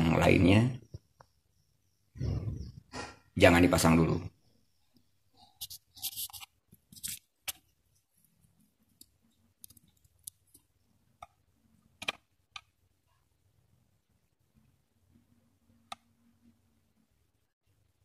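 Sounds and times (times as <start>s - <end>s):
plastic chips clicking and scraping: 8.9s - 10.7s.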